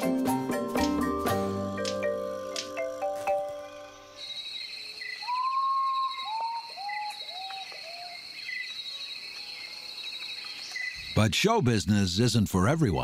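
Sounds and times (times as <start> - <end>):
high insect trill: 1.5 - 11.5
bird whistling clear notes: 5.2 - 8.2.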